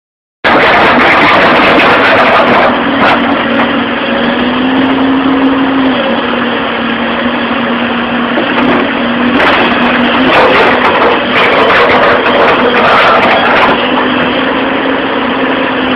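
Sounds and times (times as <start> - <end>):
construction machine engine running: 0.4 - 15.9
held whine: 0.5 - 15.9.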